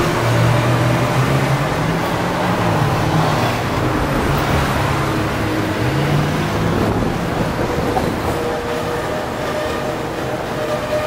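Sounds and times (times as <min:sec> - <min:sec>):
road noise rushing: 0:00.0 - 0:11.0
tram rolling past: 0:00.0 - 0:11.0.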